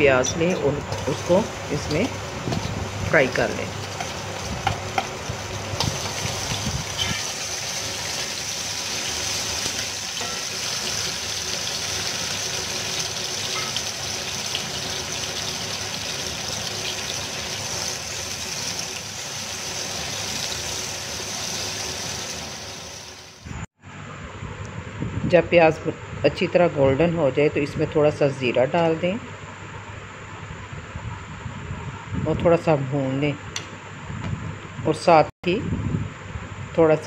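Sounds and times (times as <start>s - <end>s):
onions sizzling in oil: 0.2s - 23.5s.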